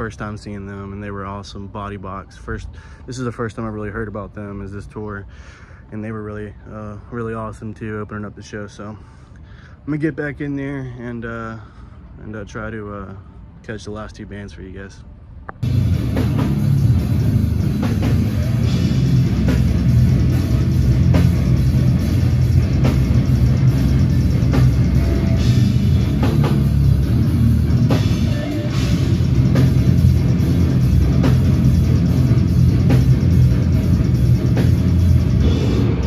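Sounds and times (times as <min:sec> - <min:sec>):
distorted guitars and bass: 0:15.5 - 0:36.0
pounding drum kit: 0:15.6 - 0:36.0.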